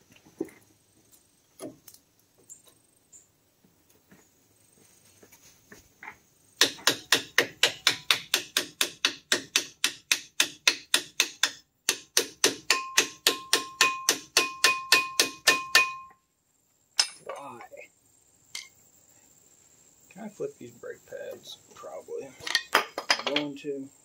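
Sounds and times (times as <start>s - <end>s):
hammer striking ringing metal: 7.8s - 16.2s.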